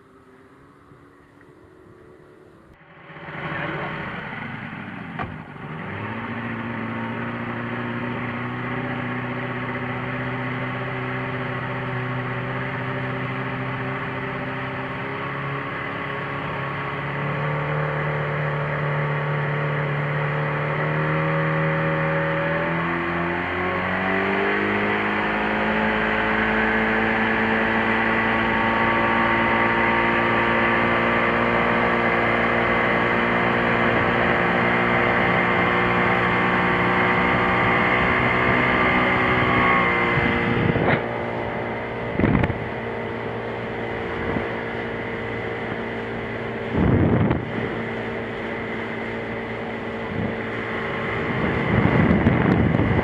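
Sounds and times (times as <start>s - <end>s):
outboard motor running: 0.0s - 53.0s
wake and wind rushing: 50.0s - 53.0s.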